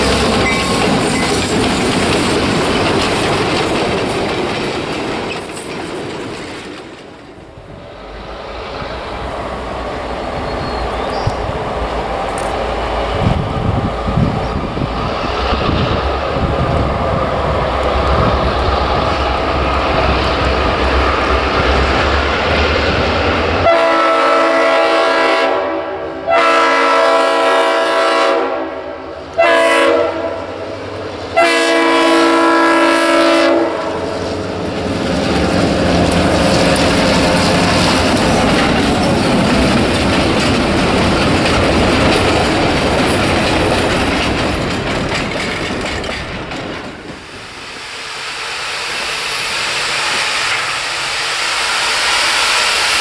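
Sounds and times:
train wheels rumbling on rails: 0:00.0 - 0:53.0
steam whistle blasts: 0:23.6 - 0:30.4, 0:31.4 - 0:34.0.

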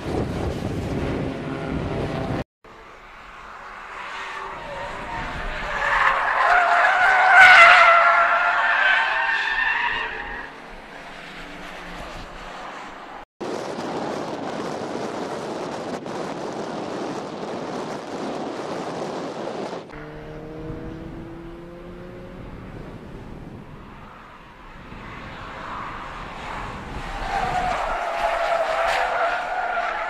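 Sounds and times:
car engines accelerating: 0:00.0 - 0:13.3, 0:19.9 - 0:30.0
steady rushing noise: 0:10.7 - 0:20.0.

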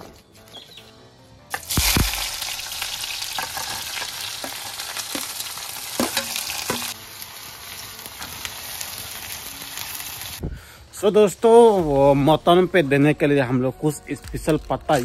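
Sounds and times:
onions sizzling in oil: 0:01.5 - 0:10.4.

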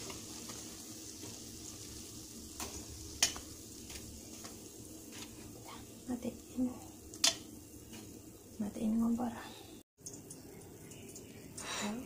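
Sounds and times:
dough sizzling in hot oil: 0:00.0 - 0:09.4
metal tongs clicking on pan: 0:02.6 - 0:03.5, 0:07.1 - 0:07.5.

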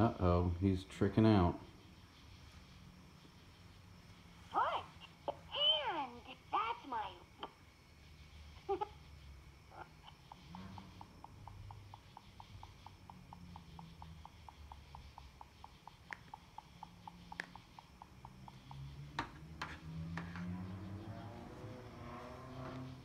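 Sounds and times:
toy speaker ticking: 0:04.1 - 0:07.6, 0:09.7 - 0:22.2.

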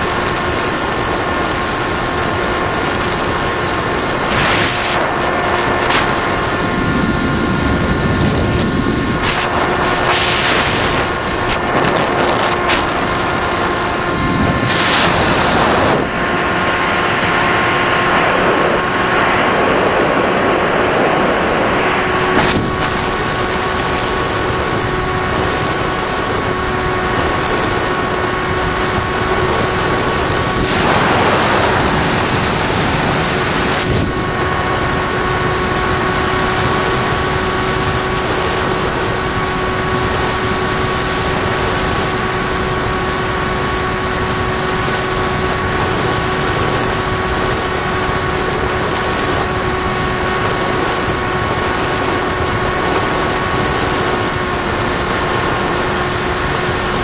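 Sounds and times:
electric motor propeller whine: 0:00.0 - 0:57.0
wind rushing: 0:02.4 - 0:40.9.

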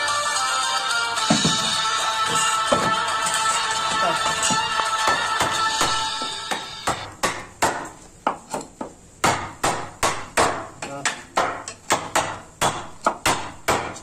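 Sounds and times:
steel pipe hammering chisel handle: 0:04.2 - 0:14.0.

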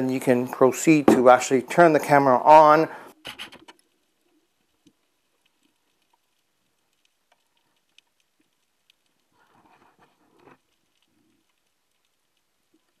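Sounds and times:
faint clicks and ticks: 0:03.1 - 0:13.0.

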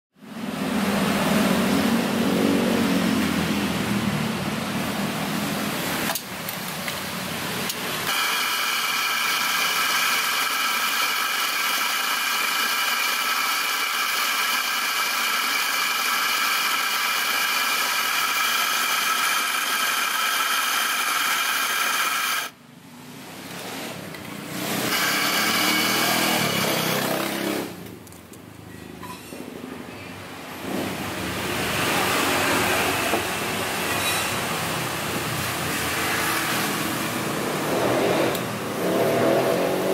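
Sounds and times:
coffee grinder motor whine: 0:08.0 - 0:22.6, 0:24.8 - 0:27.7.

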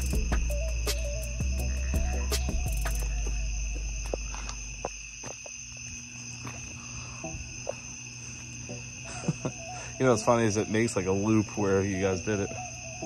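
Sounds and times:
low hum: 0:00.0 - 0:05.3
crickets chirring: 0:00.0 - 0:13.0.

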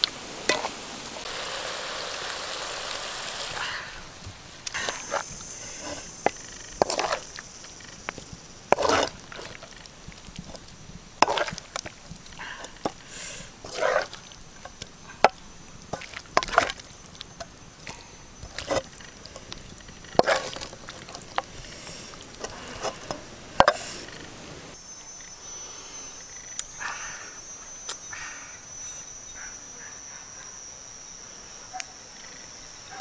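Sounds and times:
spatula scraping a wok: 0:04.8 - 0:07.4, 0:08.7 - 0:09.7, 0:11.2 - 0:11.8, 0:12.8 - 0:15.3, 0:18.4 - 0:24.2
high buzz: 0:24.0 - 0:33.0.

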